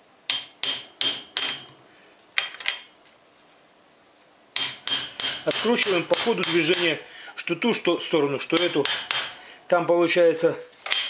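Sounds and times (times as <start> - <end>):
hammer striking steel spanner: 0.3 - 1.8, 4.6 - 7.0, 8.5 - 9.4.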